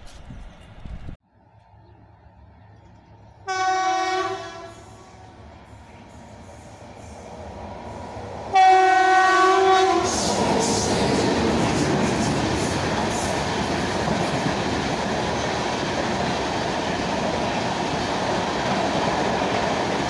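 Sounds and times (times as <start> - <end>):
train rumbling past: 0.0 - 20.0
train horn blasts: 3.4 - 6.1, 8.5 - 10.4.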